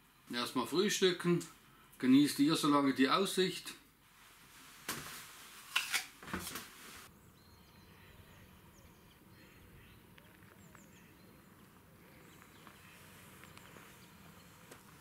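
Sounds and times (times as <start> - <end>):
bird chirps: 7.2 - 15.0.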